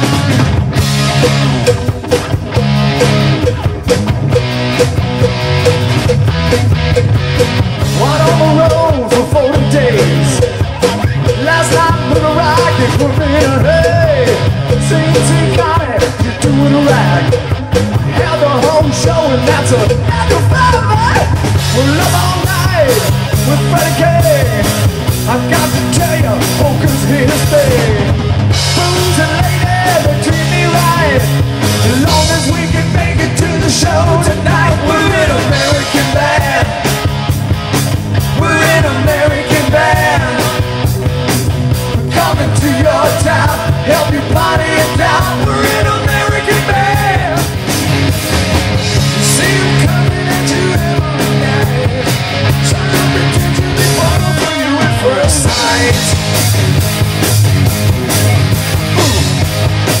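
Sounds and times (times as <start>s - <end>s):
lead electric guitar bending lines: 0.0s - 60.0s
rock band playing: 0.0s - 60.0s.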